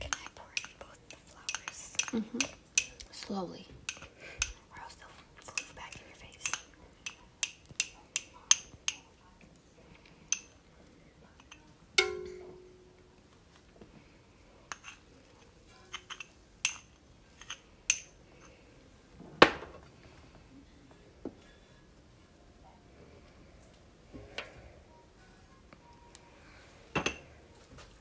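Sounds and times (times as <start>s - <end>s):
metal spoon tapping metal pan: 12.0s - 13.0s.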